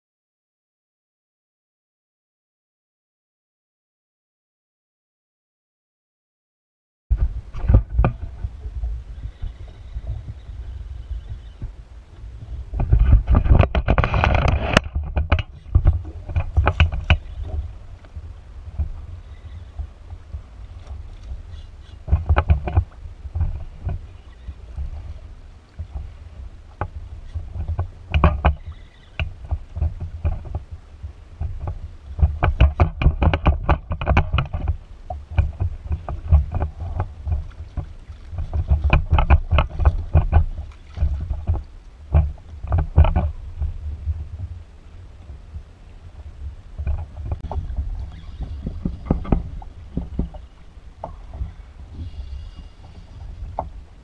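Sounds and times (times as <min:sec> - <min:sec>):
water splashing against kayak hull: 0:07.1 - 0:54.0
wind rumble on microphone: 0:07.1 - 0:54.0.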